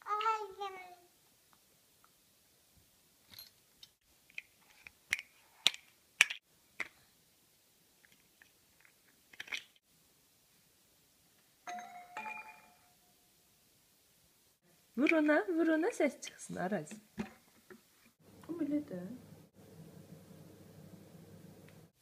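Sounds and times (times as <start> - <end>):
plastic toy blocks clacking: 8.8 - 9.8
tumbler doll chime: 11.7 - 13.2.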